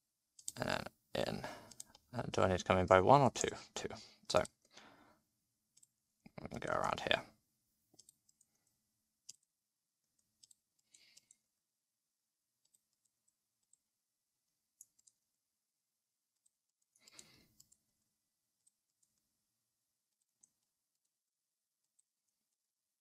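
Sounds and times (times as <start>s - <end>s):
computer mouse and keyboard clicks: 0.4s - 0.6s, 8.0s - 9.5s, 10.2s - 11.4s, 16.4s - 17.8s.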